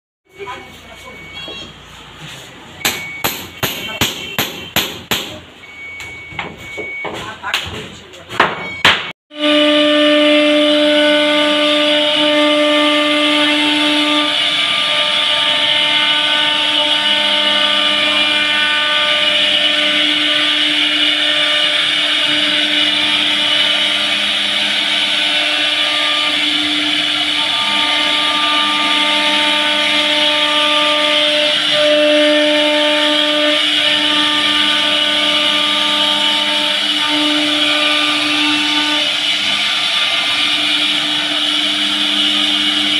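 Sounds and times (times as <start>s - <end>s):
router spindle whining: 11.6s - 42.9s.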